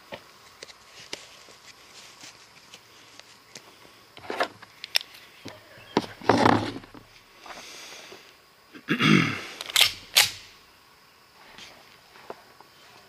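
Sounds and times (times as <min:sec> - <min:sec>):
pistol slide snapping: 0:09.6 - 0:10.5.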